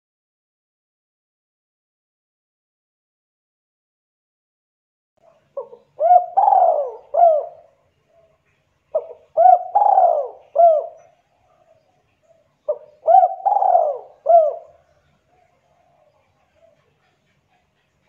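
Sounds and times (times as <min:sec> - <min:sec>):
dove cooing: 0:05.2 - 0:17.8.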